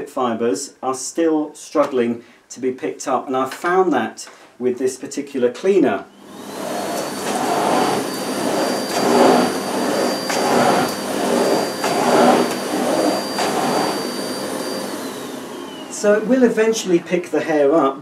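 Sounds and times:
vacuum cleaner whining: 6.1s - 18.0s
vacuum nozzle on carpet: 6.2s - 17.3s.

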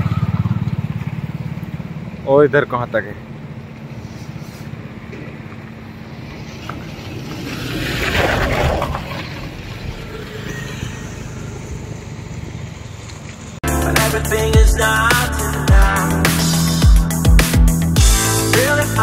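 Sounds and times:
road traffic passing: 0.0s - 19.0s
vehicle passing close: 3.3s - 13.6s.

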